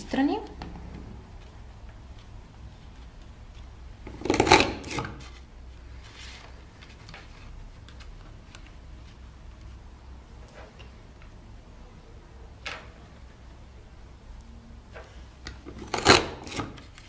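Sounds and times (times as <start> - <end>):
paper punch crunching card: 4.1 - 5.2, 15.7 - 17.0.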